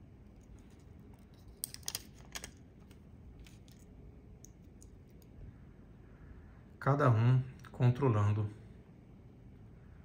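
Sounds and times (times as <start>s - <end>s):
watch bracelet clicks and rattles: 0.3s - 5.3s.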